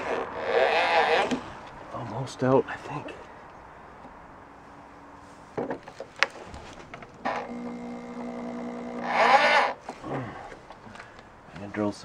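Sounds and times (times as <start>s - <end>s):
power drill whining and grinding: 0.0s - 1.8s, 6.8s - 11.2s
drill clicks: 5.8s - 11.7s.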